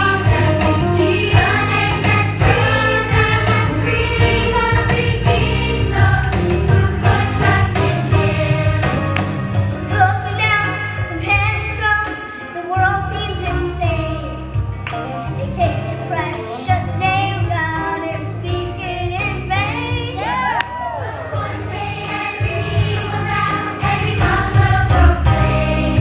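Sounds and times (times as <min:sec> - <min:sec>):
children singing: 0:00.0 - 0:09.0, 0:21.0 - 0:26.0
steady bass line: 0:00.0 - 0:10.6, 0:21.4 - 0:26.0
instrumental accompaniment: 0:00.0 - 0:20.4, 0:21.1 - 0:26.0.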